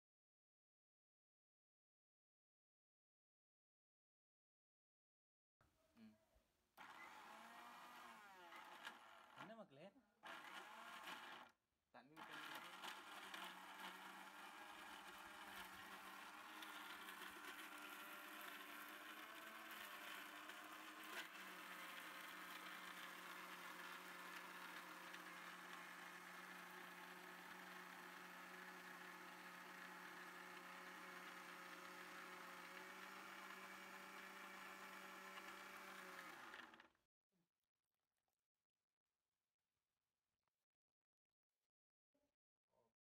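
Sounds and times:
mixer grinder motor whine: 0:06.8 - 0:09.6, 0:10.2 - 0:11.5, 0:12.2 - 0:36.9.

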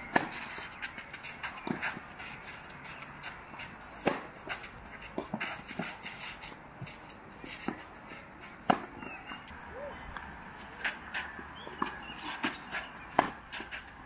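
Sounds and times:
shoes scuffing on clay court: 0:00.0 - 0:14.0
tennis racket striking ball: 0:03.2 - 0:05.9, 0:08.6 - 0:09.1, 0:10.8 - 0:13.8.

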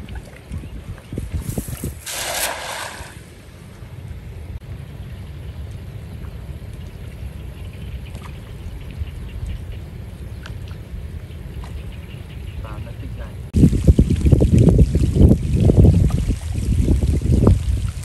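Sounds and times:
steady low rumble: 0:00.0 - 0:18.0
net splashing into water: 0:01.6 - 0:03.4.

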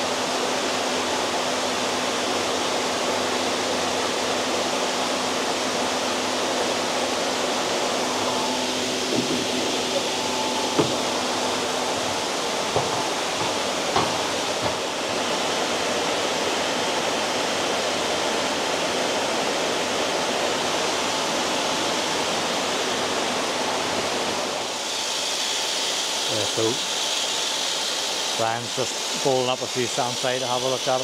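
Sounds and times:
running water rushing: 0:00.0 - 0:18.6
faint knocks: 0:08.2 - 0:15.0.

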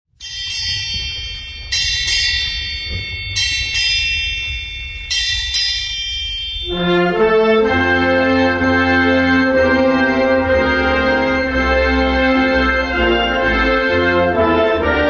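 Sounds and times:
music: 0:00.1 - 0:15.0
high bell struck: 0:00.2 - 0:07.7.

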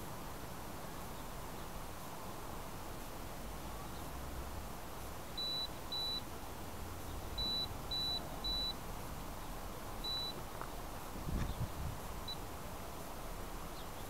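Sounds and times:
steady low hiss: 0:00.0 - 0:14.0
high electronic beeps: 0:05.4 - 0:06.2, 0:07.4 - 0:08.8, 0:10.0 - 0:10.4.

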